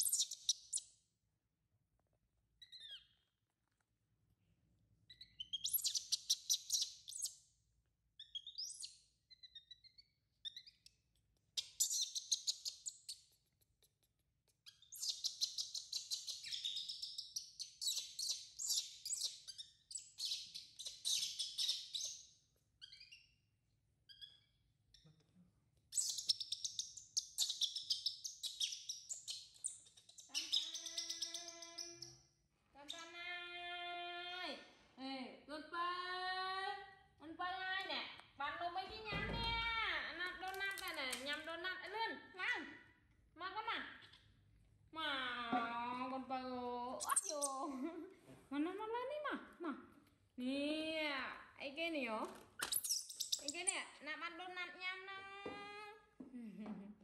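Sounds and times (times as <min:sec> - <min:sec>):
baby monkey squeaky chirps: 0:00.0 - 0:00.9, 0:02.6 - 0:03.2, 0:05.1 - 0:07.4, 0:08.2 - 0:10.9, 0:11.6 - 0:13.3, 0:14.6 - 0:23.4, 0:24.1 - 0:25.2, 0:25.9 - 0:32.2, 0:47.0 - 0:47.7, 0:52.6 - 0:54.0.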